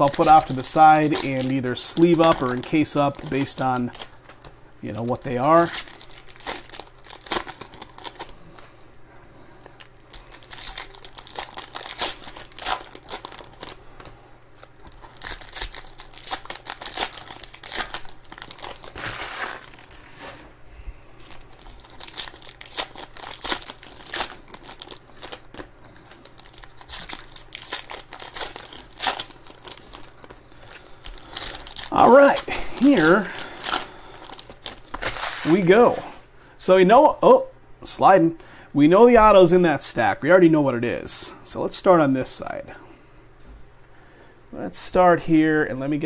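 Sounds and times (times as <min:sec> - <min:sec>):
foil wrappers crinkling: 0:00.0 - 0:08.8, 0:09.7 - 0:20.5, 0:21.2 - 0:36.2.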